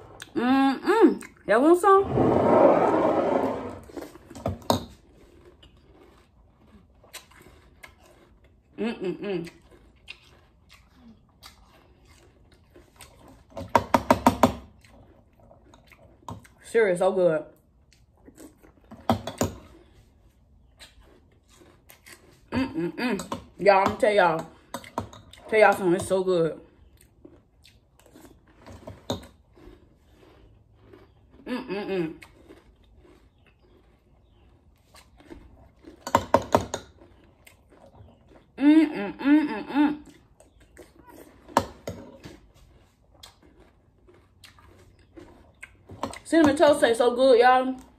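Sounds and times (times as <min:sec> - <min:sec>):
crunching cereal: 0:02.9 - 0:08.8, 0:09.4 - 0:13.5, 0:19.6 - 0:22.5, 0:26.6 - 0:31.5, 0:32.1 - 0:38.6, 0:40.2 - 0:46.3
small eating clicks: 0:04.1 - 0:39.2, 0:39.9 - 0:47.9.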